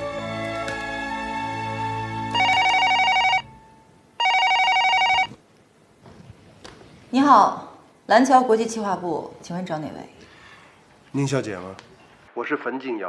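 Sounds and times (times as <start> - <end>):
soft background music: 0.0 - 5.0
telephone ringing electronic trill: 2.4 - 3.6, 4.2 - 5.4.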